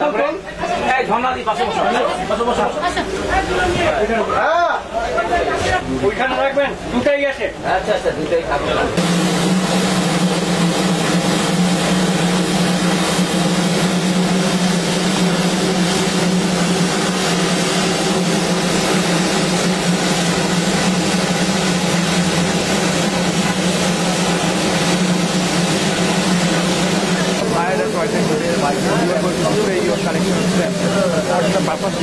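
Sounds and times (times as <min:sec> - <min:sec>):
low hum: 0:09.0 - 0:32.0
steam escaping with rushing hiss: 0:09.0 - 0:32.0.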